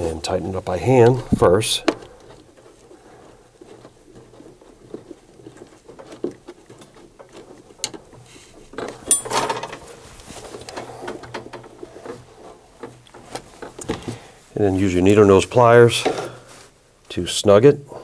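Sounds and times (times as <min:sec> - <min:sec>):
rustle and clatter: 0:00.0 - 0:16.8
small clicks and rubbing of nut: 0:00.9 - 0:09.1.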